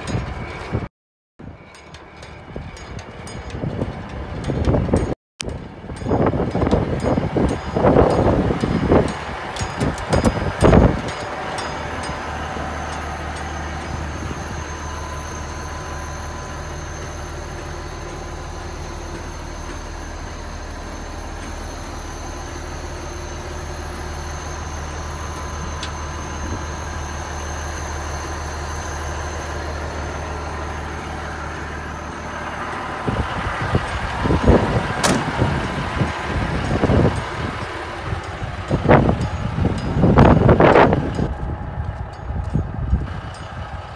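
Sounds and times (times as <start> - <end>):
wind buffeting microphone: 0.0 - 15.1, 32.8 - 43.9
diesel truck engine idling: 2.5 - 43.9.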